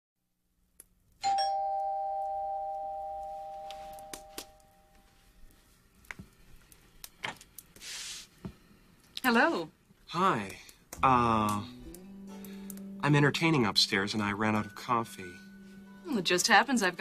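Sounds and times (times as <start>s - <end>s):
two-tone doorbell chime: 1.2s - 5.1s
brief hiss: 7.8s - 8.4s.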